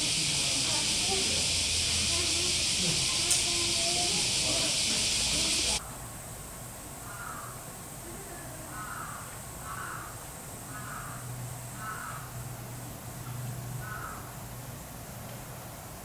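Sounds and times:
bird calling: 0:00.0 - 0:05.8, 0:08.7 - 0:12.4, 0:13.8 - 0:14.3.

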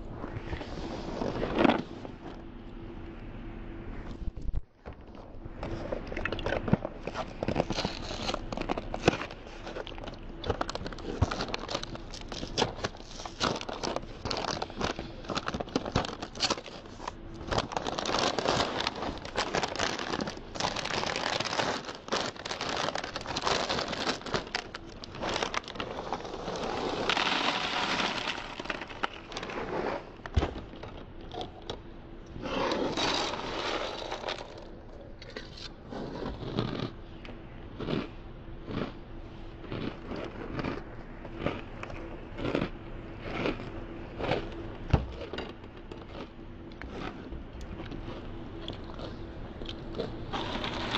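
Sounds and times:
plastic bag crinkling and tearing: 0:06.3 - 0:30.0, 0:50.3 - 0:50.9
dry cereal rattling into a tub: 0:17.4 - 0:29.7, 0:32.9 - 0:34.7, 0:50.4 - 0:50.9.

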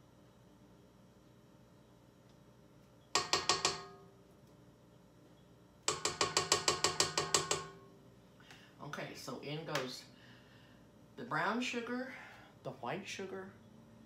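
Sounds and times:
spatula tapping metal beater: 0:03.2 - 0:04.2, 0:05.8 - 0:08.0.

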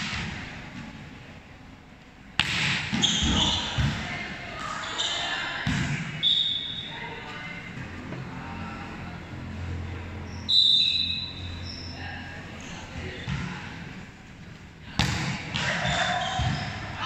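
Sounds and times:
volleyball serve smack: 0:02.4 - 0:03.2
voices: 0:03.0 - 0:17.0.

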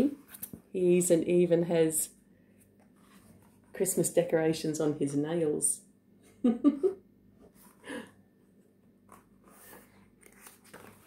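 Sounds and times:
book pages turning: 0:00.2 - 0:00.6, 0:09.0 - 0:11.0.

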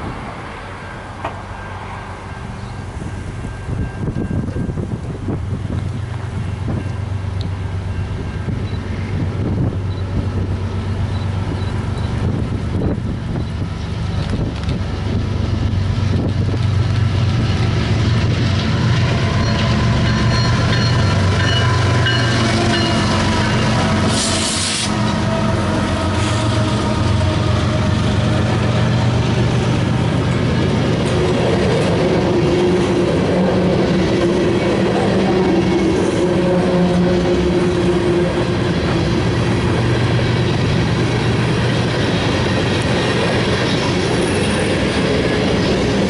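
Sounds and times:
diesel locomotive engines running: 0:00.0 - 0:46.0
train wheels clacking over rails: 0:04.0 - 0:46.0
short burst of hiss: 0:24.1 - 0:25.0.

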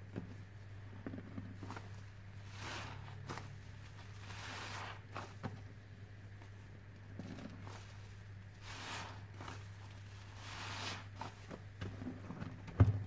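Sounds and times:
sponge squelching in foam: 0:01.5 - 0:05.4, 0:07.3 - 0:12.1.

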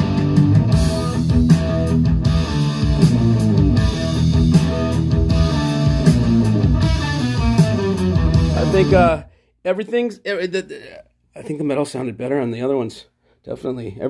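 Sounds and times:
heavy metal music over loudspeakers: 0:00.0 - 0:09.2.

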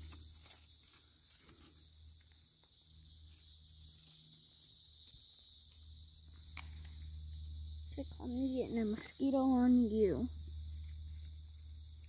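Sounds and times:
high-pitched insect drone: 0:00.0 - 0:12.0
low hum: 0:05.7 - 0:12.0.

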